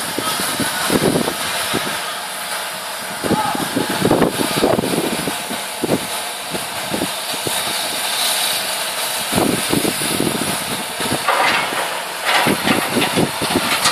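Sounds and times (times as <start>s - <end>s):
excavator diesel engine running: 0.0s - 13.9s
concrete debris knocking: 11.3s - 13.9s.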